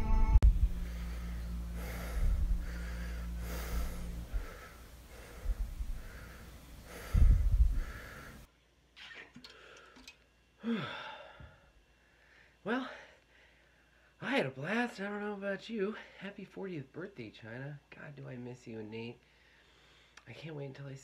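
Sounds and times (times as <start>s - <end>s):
low hum: 0.0s - 8.5s
man breathing heavily: 0.5s - 8.5s, 9.5s - 14.2s, 19.2s - 20.2s.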